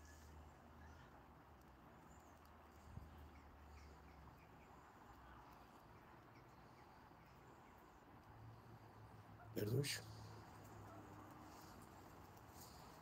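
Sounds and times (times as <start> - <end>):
distant bird chirps: 0.0 - 13.0
light rain: 0.0 - 13.0.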